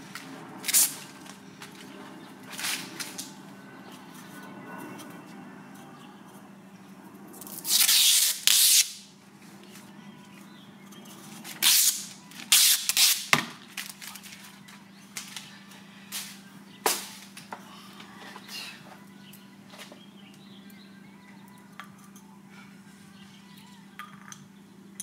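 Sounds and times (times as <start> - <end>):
plastic film peeling: 7.4 - 9.0, 11.5 - 14.5.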